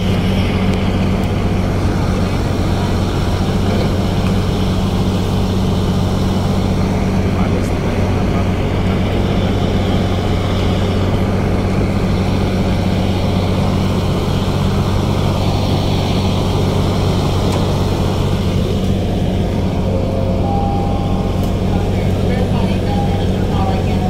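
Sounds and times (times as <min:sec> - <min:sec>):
rushing noise: 0:00.0 - 0:24.0
ship engines droning: 0:00.0 - 0:24.0.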